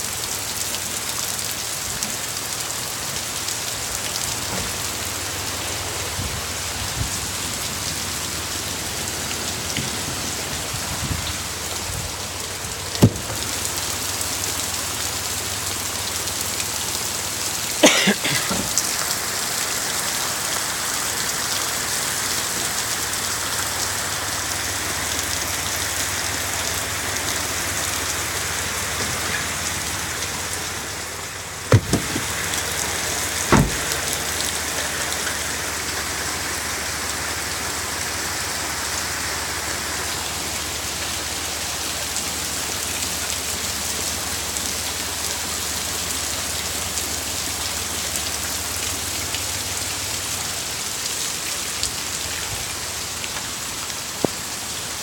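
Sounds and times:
heavy rain pouring: 0.0 - 55.0
sharp knocks: 13.0 - 13.6, 31.7 - 32.3, 33.5 - 33.9.

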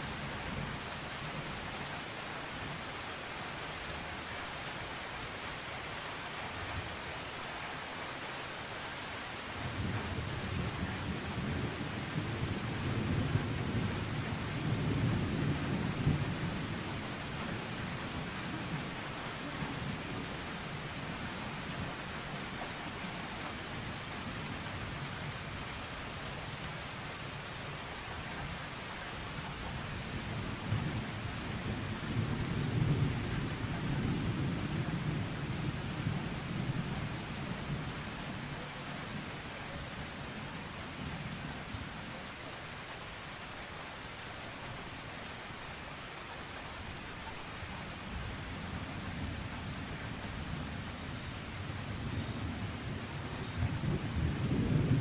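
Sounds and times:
steady rain falling: 0.0 - 55.0
low rolling thunder: 9.6 - 18.8, 51.9 - 55.0.

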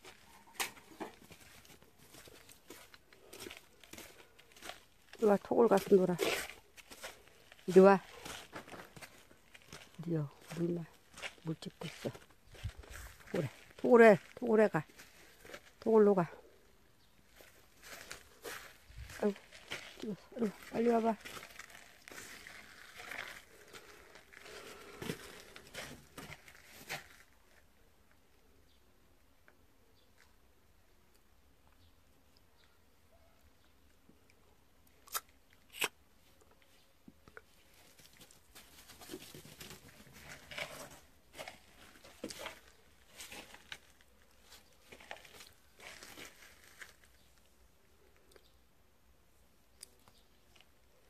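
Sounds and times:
footsteps on dry leaves: 0.0 - 15.8, 17.3 - 27.3, 38.2 - 47.2.

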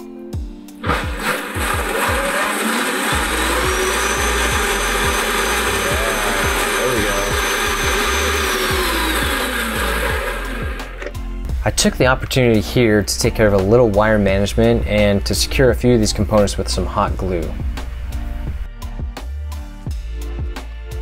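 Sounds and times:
electric motors and gearboxes whining: 0.8 - 11.2.

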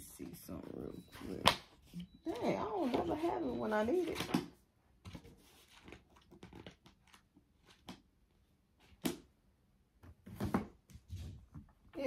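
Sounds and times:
rustling and scraping: 5.0 - 8.0.

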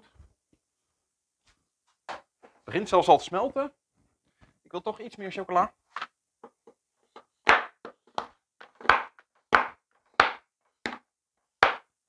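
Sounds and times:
knife chopping on wooden board: 8.8 - 11.0.

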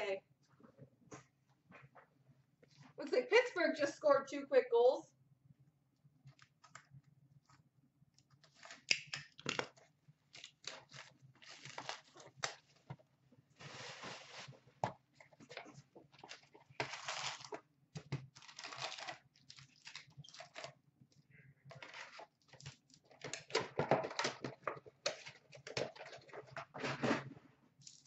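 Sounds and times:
plastic wrap crinkling and tearing: 10.3 - 12.9, 13.6 - 14.6, 16.2 - 17.6, 18.3 - 20.8.

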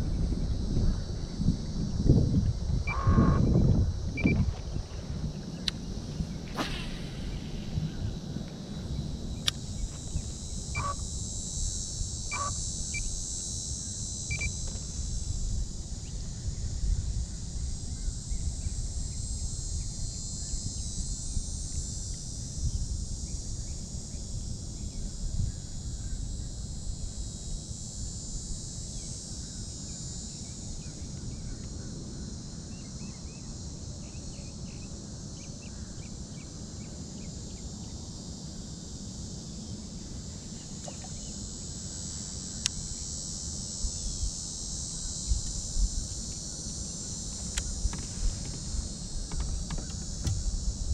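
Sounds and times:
insects shrilling: 5.2 - 13.2, 39.9 - 50.9.

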